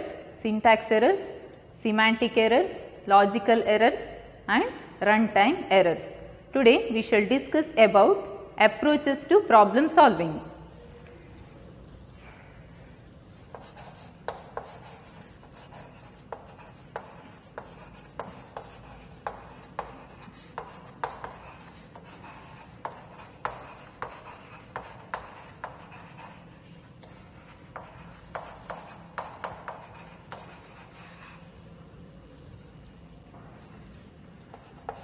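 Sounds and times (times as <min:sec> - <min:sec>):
chalk tapping and scratching: 0:13.3 - 0:31.6, 0:33.6 - 0:35.0.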